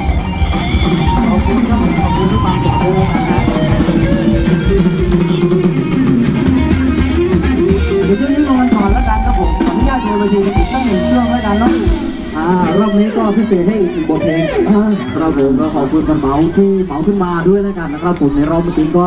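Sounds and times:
steady drum beat: 0:00.0 - 0:13.2
live band dance music: 0:00.0 - 0:15.2
melody line: 0:01.0 - 0:14.0.

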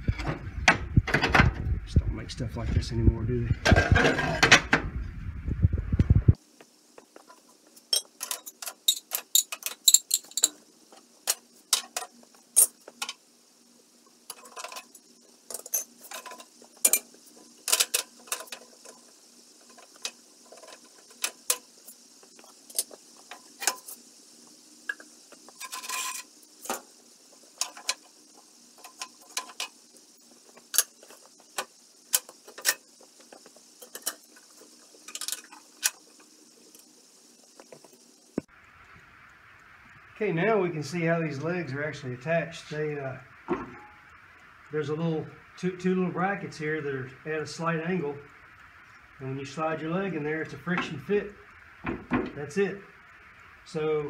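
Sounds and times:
iron stove parts clinking: 0:03.6 - 0:04.7, 0:07.3 - 0:10.6, 0:11.2 - 0:13.2, 0:14.3 - 0:21.7, 0:24.9 - 0:26.9.

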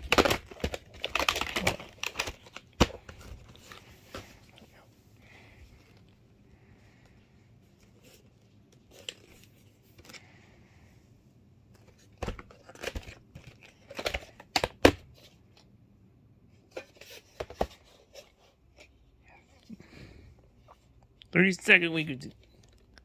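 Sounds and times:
plastic case clicks and rustles: 0:00.0 - 0:04.6, 0:11.7 - 0:15.7.

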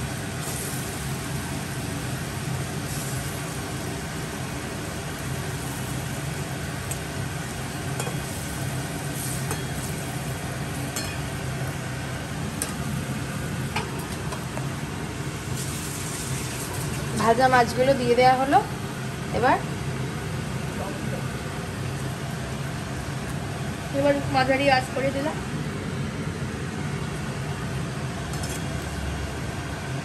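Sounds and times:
gravy bubbling in a wok: 0:00.0 - 0:30.0.

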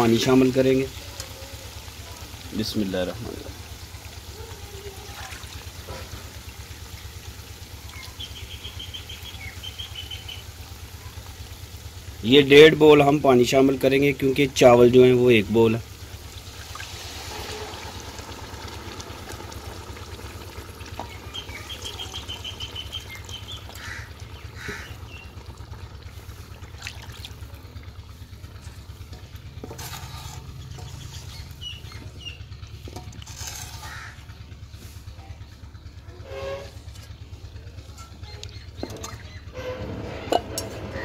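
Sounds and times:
small birds chirping: 0:06.7 - 0:11.9, 0:20.8 - 0:25.4, 0:27.5 - 0:32.9, 0:33.7 - 0:39.6.

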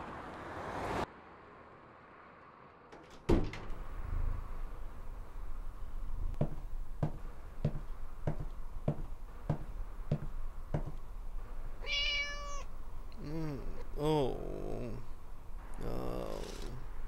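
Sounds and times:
footsteps: 0:06.3 - 0:11.6
cat meowing: 0:11.8 - 0:12.7.

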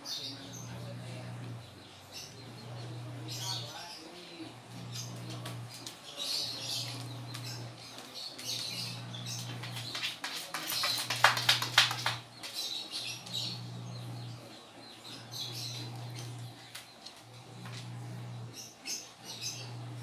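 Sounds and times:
dog claws scratching plastic: 0:07.0 - 0:12.6.

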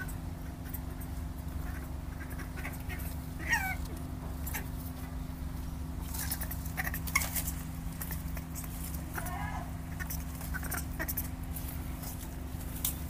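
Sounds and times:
steady low hum: 0:00.0 - 0:13.0
monkey call: 0:01.6 - 0:04.7, 0:08.0 - 0:11.4.

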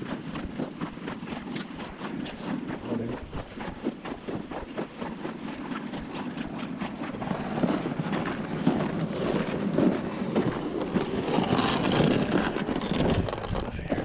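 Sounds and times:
wind buffeting microphone: 0:05.9 - 0:14.0.

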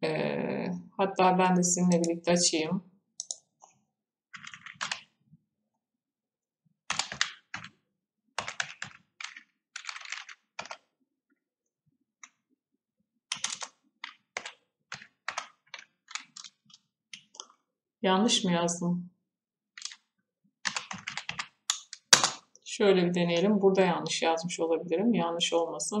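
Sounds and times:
typing on keyboard: 0:03.2 - 0:03.5, 0:04.3 - 0:05.1, 0:06.9 - 0:07.8, 0:08.4 - 0:10.9, 0:13.3 - 0:17.6, 0:19.8 - 0:22.4.

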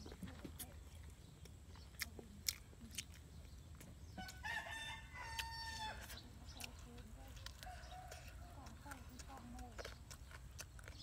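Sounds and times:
eating clicks: 0:00.0 - 0:04.5, 0:05.1 - 0:11.0
rooster crowing: 0:04.2 - 0:06.0.

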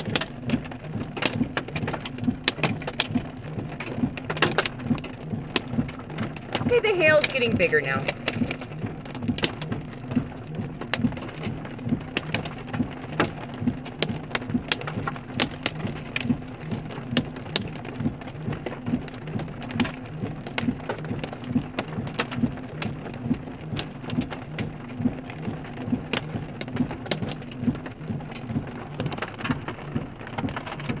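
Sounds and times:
hail and rain drumming on car roof: 0:00.0 - 0:31.0.

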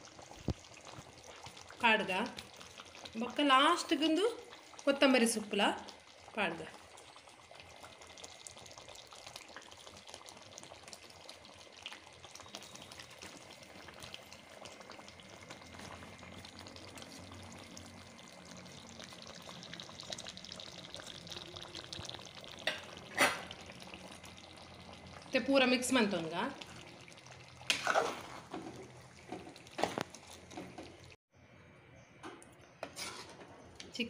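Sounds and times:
curry simmering and bubbling: 0:00.0 - 0:31.2
ladle stirring: 0:27.1 - 0:31.1, 0:32.8 - 0:33.5.

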